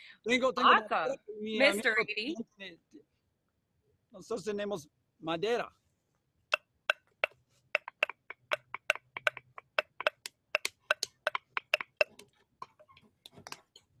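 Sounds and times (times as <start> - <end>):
wooden sticks clacking together: 6.9 - 13.9.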